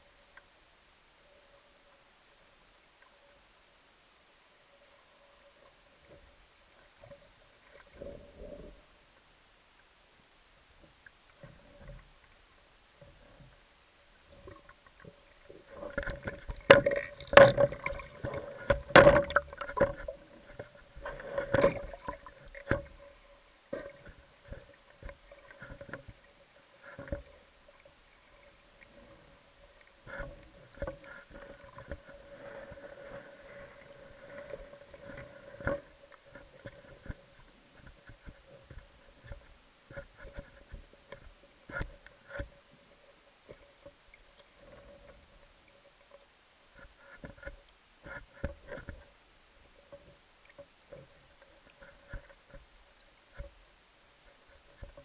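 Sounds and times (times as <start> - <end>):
faint steady hum: 0.0 - 55.0
muffled knocks and clicks underwater: 14.3 - 27.9, 28.8 - 42.7, 46.8 - 52.7, 53.3 - 53.7, 54.3 - 55.0.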